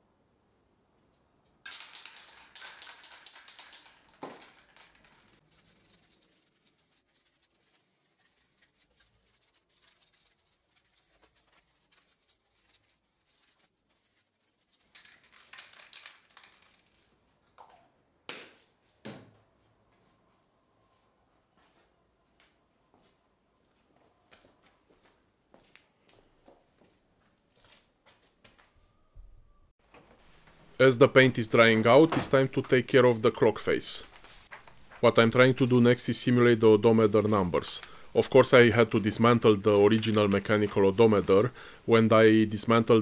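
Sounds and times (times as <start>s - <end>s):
spray paint can spraying: 1.7s - 16.0s.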